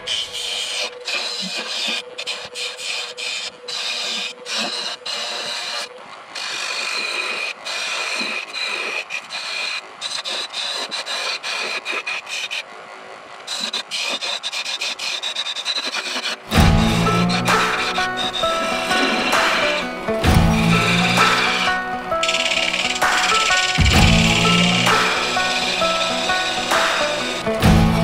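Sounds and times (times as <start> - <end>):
gouge scraping wood on lathe: 0.0 - 28.0
steady high tone: 16.6 - 28.0.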